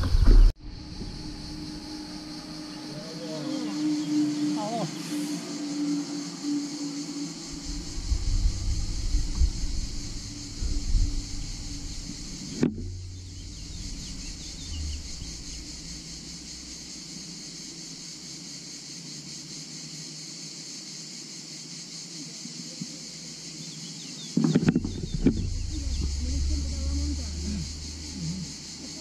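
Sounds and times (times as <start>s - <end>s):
low wind rumble: 0.0s - 3.0s, 5.5s - 18.2s, 24.4s - 29.0s
cicadas buzzing: 0.0s - 29.0s.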